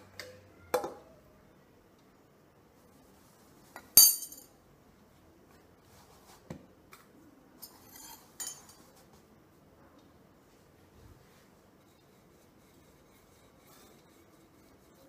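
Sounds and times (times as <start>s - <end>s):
soft rubbing: 10.4s - 15.0s.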